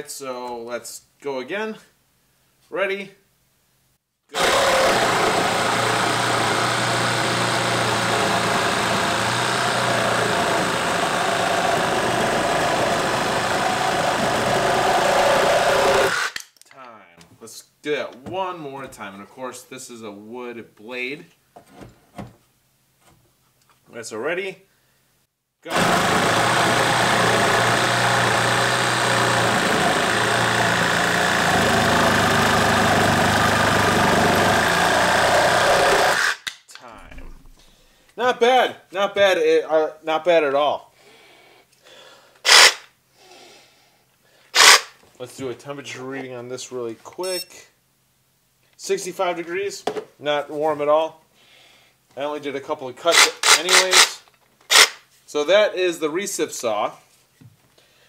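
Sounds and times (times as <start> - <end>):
reciprocating saw cutting wood: 4.4 - 16.4, 25.7 - 36.4.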